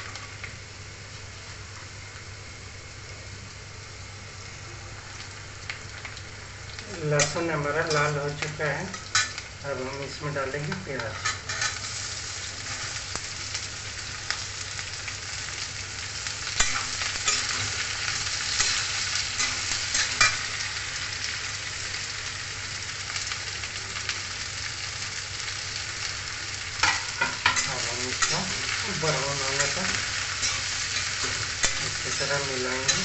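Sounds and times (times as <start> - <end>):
onions sizzling in hot oil: 0.0 - 33.0
spatula scraping a pan: 11.2 - 12.0.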